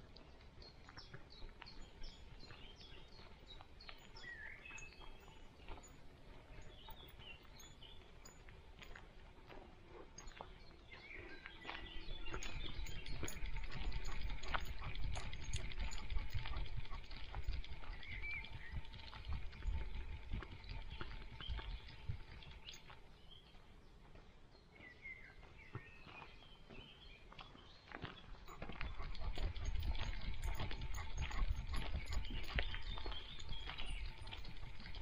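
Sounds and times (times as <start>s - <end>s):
faint birds chirping: 0.0s - 35.0s.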